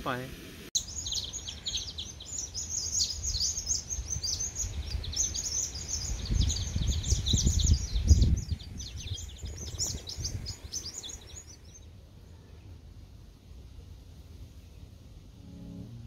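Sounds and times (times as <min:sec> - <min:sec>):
small birds chirping: 0:00.8 - 0:12.8
low rumble on microphone: 0:15.1 - 0:16.0.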